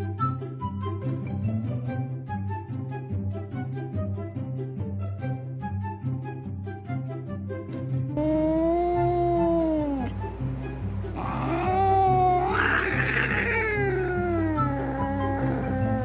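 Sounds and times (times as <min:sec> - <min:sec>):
background music with steady beat: 0:00.0 - 0:08.2
cat yowling: 0:08.2 - 0:10.4, 0:11.1 - 0:16.0.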